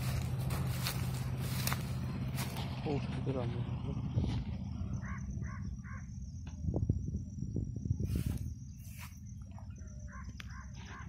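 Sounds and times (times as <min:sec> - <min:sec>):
low rumble: 0:00.0 - 0:10.4
high-pitched insect drone: 0:03.6 - 0:11.0
crow cawing: 0:05.0 - 0:06.1.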